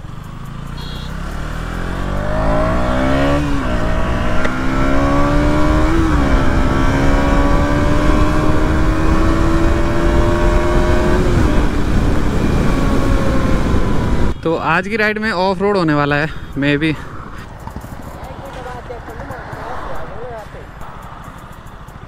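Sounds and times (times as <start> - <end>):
motorcycle engine accelerating: 0.0 - 14.4, 16.7 - 22.0
wind rush on microphone: 5.1 - 14.4.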